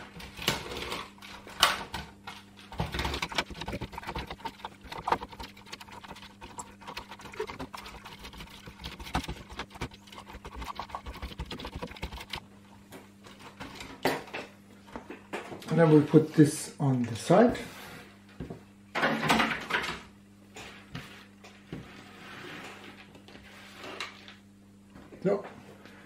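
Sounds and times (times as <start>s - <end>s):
cloth rubbing on plastic: 3.2s - 12.4s.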